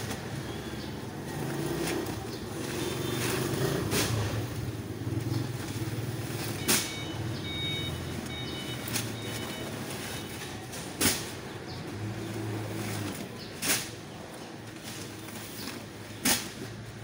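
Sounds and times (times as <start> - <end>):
short high beeps: 6.6 - 10.4.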